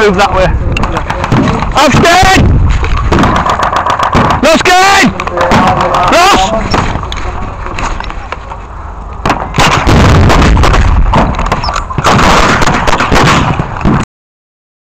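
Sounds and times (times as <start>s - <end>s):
blank gunfire: 0.8s - 4.6s, 9.2s - 14.0s.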